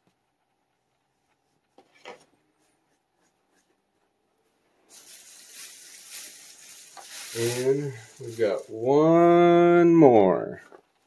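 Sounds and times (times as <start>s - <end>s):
short rustle: 4.8s - 8.9s
packaging rubbing and rustling: 4.9s - 8.9s.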